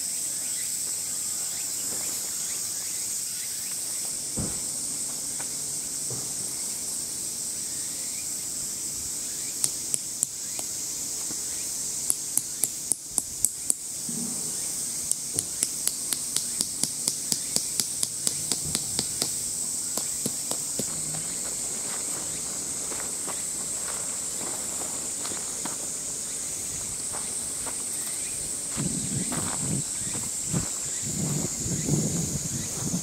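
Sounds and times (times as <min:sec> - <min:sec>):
insects droning: 0:00.0 - 0:33.0.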